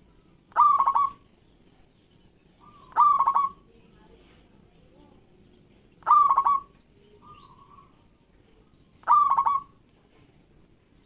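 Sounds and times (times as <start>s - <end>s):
dove cooing: 0.5s - 1.2s, 2.6s - 3.7s, 6.0s - 8.0s, 9.0s - 9.8s.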